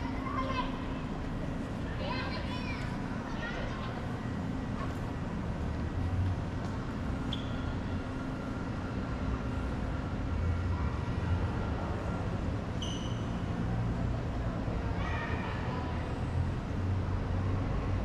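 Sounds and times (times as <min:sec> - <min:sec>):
low rumble of street traffic: 0:00.0 - 0:18.0
short high squeak: 0:07.3 - 0:07.8, 0:12.8 - 0:13.4.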